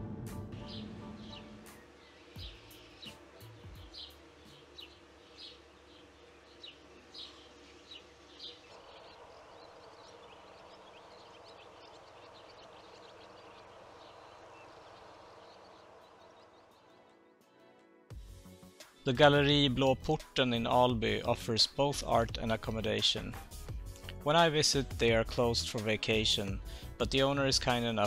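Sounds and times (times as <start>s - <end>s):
small birds chirping: 0.6s - 17.6s, 25.4s - 28.0s.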